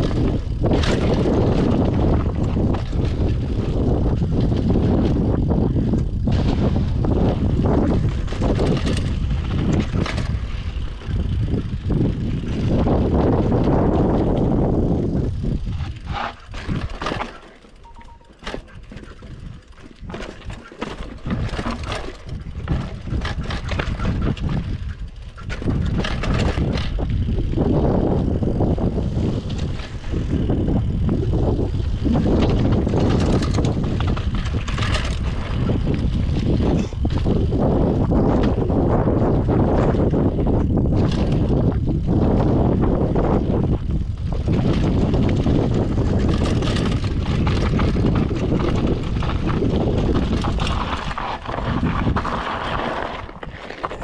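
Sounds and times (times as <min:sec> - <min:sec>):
wind buffeting microphone: 0:00.0 - 0:17.4, 0:18.4 - 0:54.0
bike rattling over rough ground: 0:00.0 - 0:54.0.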